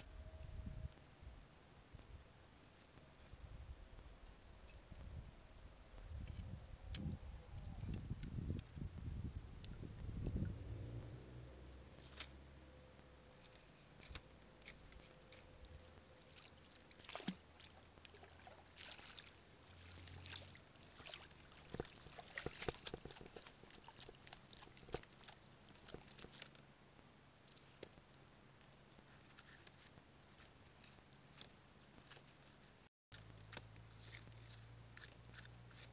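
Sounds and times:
light clicks and crackles: 12.0 - 35.9
small water splashes: 13.3 - 26.6.

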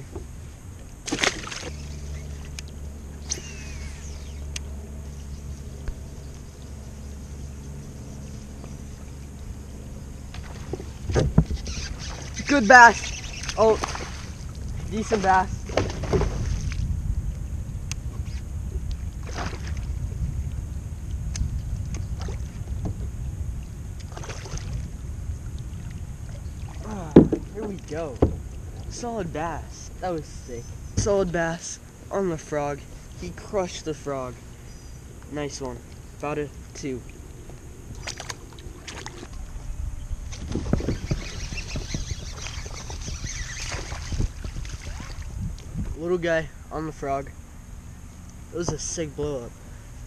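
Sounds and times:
wind rumbling on microphone: 0.0 - 50.0
water splashes: 1.0 - 4.2, 10.1 - 16.9, 19.2 - 20.0, 22.1 - 22.9, 23.5 - 30.2, 35.5 - 39.6, 40.3 - 46.1
knocks on kayak: 15.7 - 16.4, 27.1 - 27.5, 28.2 - 28.4
thuds: 27.1 - 27.5.

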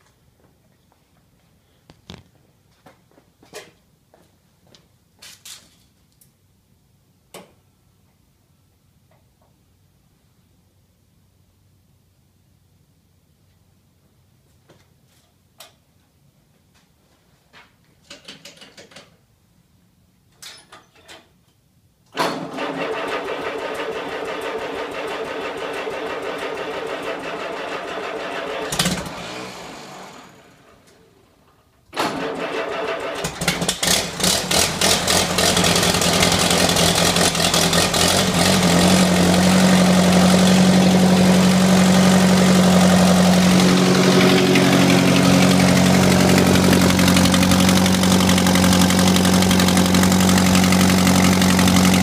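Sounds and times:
tractor engine starting and idling: 22.1 - 52.0.

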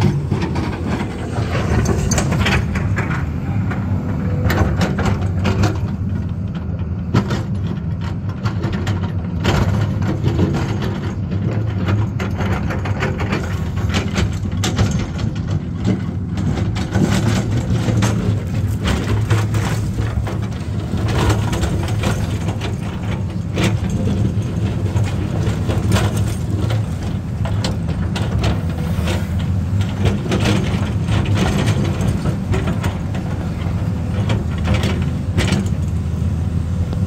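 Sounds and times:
sharp knocks and clatter: 0.0 - 3.8, 4.4 - 36.1
excavator diesel engine running: 0.0 - 37.0.

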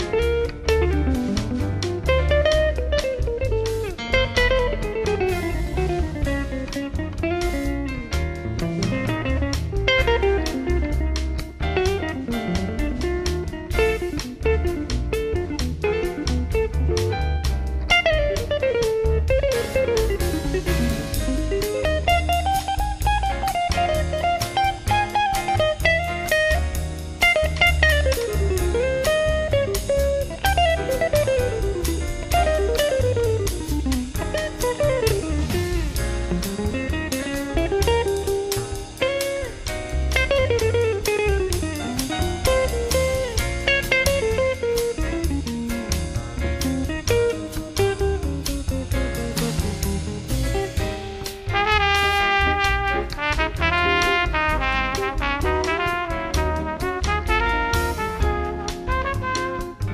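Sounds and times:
drums: 0.0 - 59.9
jazz combo playing live: 0.0 - 59.9
walking bass notes: 0.0 - 59.9.

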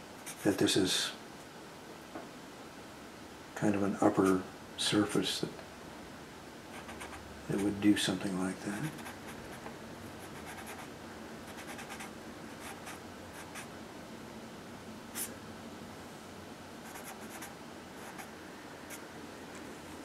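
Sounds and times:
marker scratching on paper: 6.8 - 7.8, 8.8 - 9.6, 10.2 - 10.9, 11.5 - 13.7, 16.9 - 18.3.

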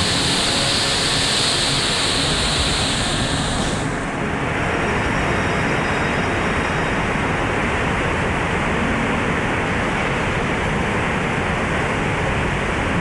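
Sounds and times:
river water rushing and roaring: 0.0 - 13.0.

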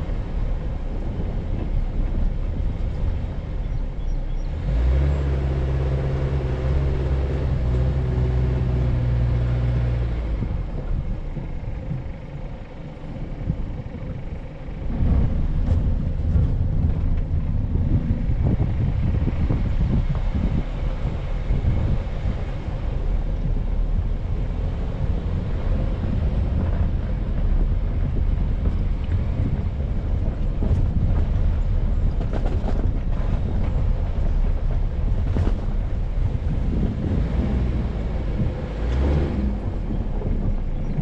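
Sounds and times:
vehicle engine rumbling: 0.0 - 41.0
wind buffeting microphone: 0.0 - 41.0.

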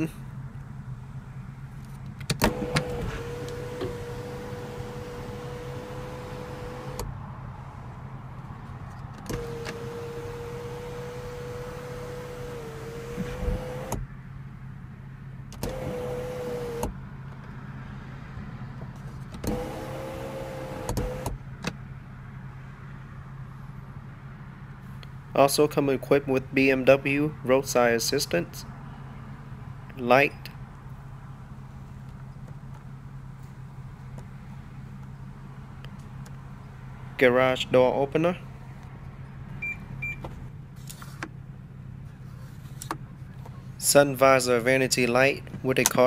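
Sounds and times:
sunroof motor whining: 1.6 - 7.2, 9.0 - 14.1, 15.5 - 17.0, 19.4 - 21.4.

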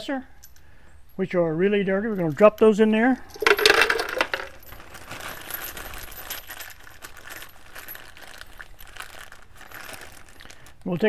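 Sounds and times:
brass cartridge cases clinking: 2.1 - 8.0.

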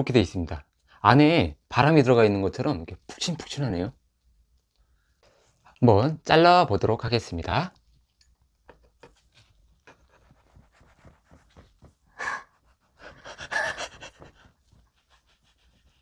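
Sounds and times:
breathy laughter: 12.9 - 14.6.

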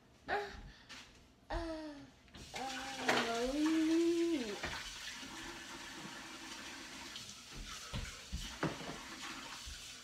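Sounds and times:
kitchen tap running: 2.3 - 10.0.

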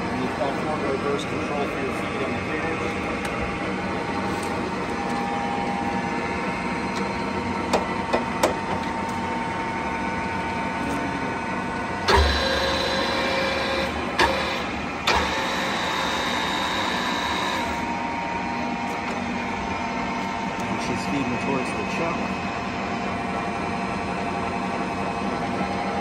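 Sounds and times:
feed motor heavy hum: 0.0 - 26.0
lathe gear hum: 0.0 - 26.0
motor stopping clunk: 7.7 - 9.2, 12.0 - 17.8.

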